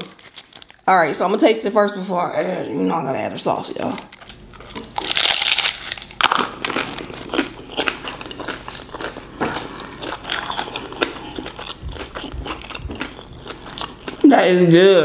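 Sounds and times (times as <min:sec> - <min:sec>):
crunchy chewing: 0:00.0 - 0:00.9, 0:04.1 - 0:14.2
taco shell crackling: 0:00.0 - 0:00.9, 0:04.0 - 0:14.2.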